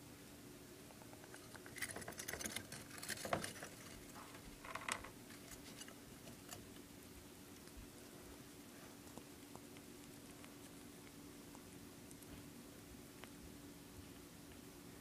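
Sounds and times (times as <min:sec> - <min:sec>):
faint steady hum: 0:00.0 - 0:15.0
hamster scrabbling in cage: 0:01.3 - 0:06.6.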